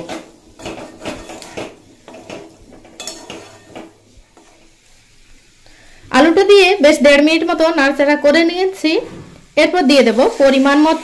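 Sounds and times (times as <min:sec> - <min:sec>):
metal spatula scraping pan: 0:00.0 - 0:04.8.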